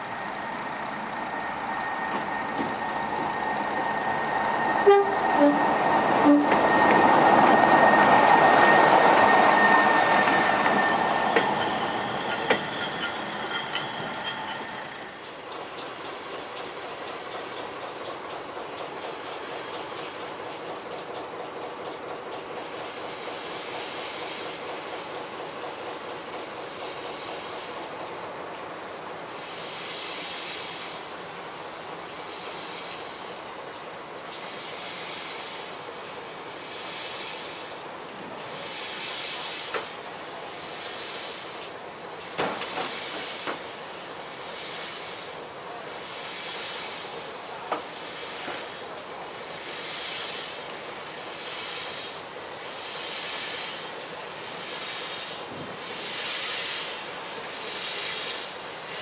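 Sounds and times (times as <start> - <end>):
steam locomotive hissing: 0.0 - 59.0
train metallic clanks: 4.6 - 27.5, 42.1 - 43.8.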